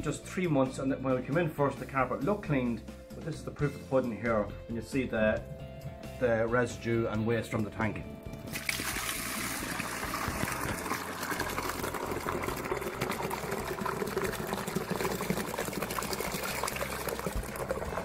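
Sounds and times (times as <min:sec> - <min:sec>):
water pouring into plastic bucket: 0:08.2 - 0:18.0.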